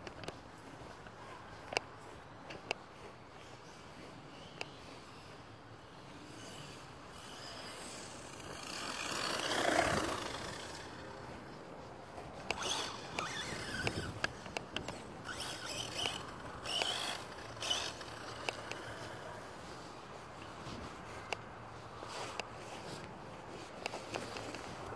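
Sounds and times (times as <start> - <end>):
electric motor whine: 6.4 - 11.2, 12.5 - 19.3.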